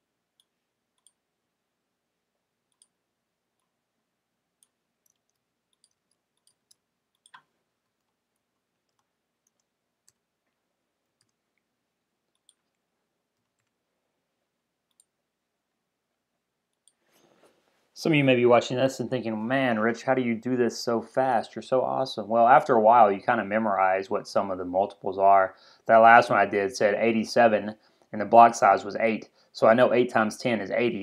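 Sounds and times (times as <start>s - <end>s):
faint keyboard typing: 0.3s - 1.3s, 2.6s - 3.8s, 4.5s - 14.0s, 14.8s - 15.2s, 16.7s - 17.8s
mouse clicks: 0.4s - 1.2s, 2.7s - 3.0s, 4.6s - 11.7s, 12.3s - 12.8s, 14.9s - 15.2s.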